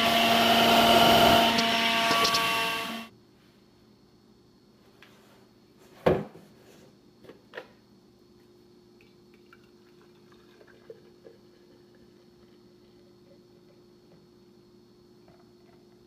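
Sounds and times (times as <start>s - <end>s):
juice pouring into glass jar: 9.0s - 13.8s.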